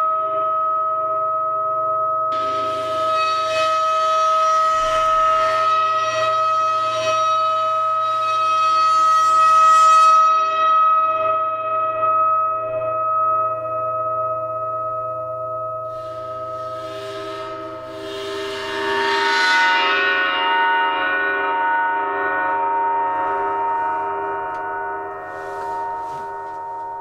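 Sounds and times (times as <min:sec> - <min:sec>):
bowed gong ringing: 0:02.3 - 0:06.5
bow scraping hiss: 0:02.4 - 0:05.9, 0:15.9 - 0:19.8, 0:25.0 - 0:26.8.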